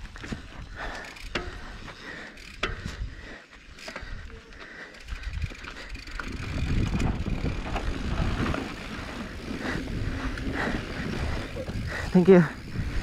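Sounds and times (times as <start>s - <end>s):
bike tyres rumbling on dirt: 0.0s - 13.0s
wind on microphone: 5.2s - 13.0s.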